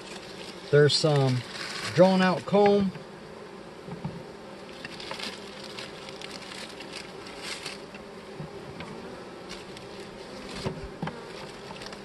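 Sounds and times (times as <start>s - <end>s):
bees buzzing: 0.0s - 12.0s
plastic bag crinkling: 4.7s - 7.9s.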